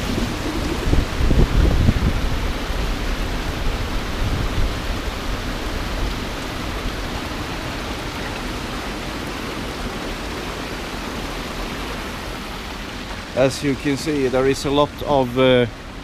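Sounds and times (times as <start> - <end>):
low rumbling: 0.0 - 7.2
water rushing through flume: 0.0 - 16.0.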